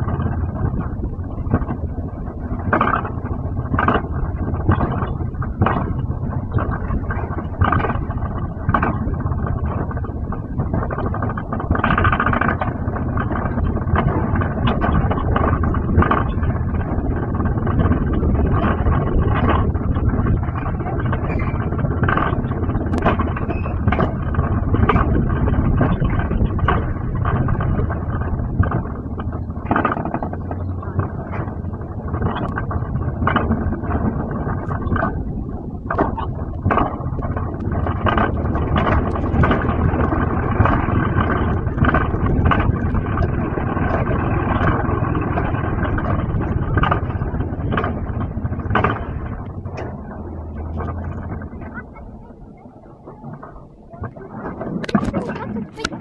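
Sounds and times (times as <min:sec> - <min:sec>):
sharp clacks: 0:00.0 - 0:56.0
wheels rumbling on steel rails: 0:00.0 - 0:56.0.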